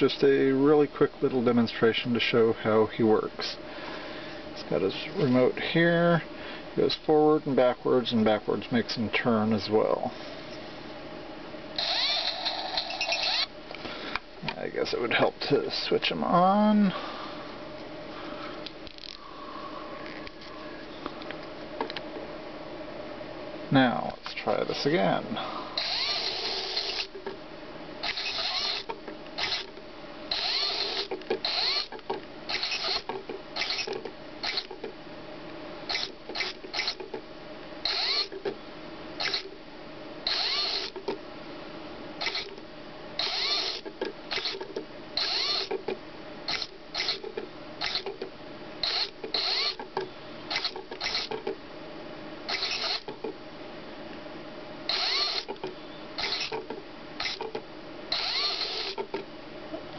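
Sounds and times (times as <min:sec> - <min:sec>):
tiny geared motor whirring: 0:11.8 - 0:13.5, 0:25.8 - 0:27.1, 0:28.0 - 0:29.7, 0:30.3 - 0:34.7, 0:35.9 - 0:37.1, 0:37.8 - 0:38.4, 0:39.2 - 0:39.5, 0:40.2 - 0:41.0, 0:42.2 - 0:42.6, 0:43.2 - 0:45.8, 0:46.5 - 0:48.2, 0:48.8 - 0:49.8, 0:50.5 - 0:51.4, 0:52.5 - 0:53.1, 0:54.9 - 0:55.6, 0:56.2 - 0:56.6, 0:57.2 - 0:57.5, 0:58.1 - 0:59.1.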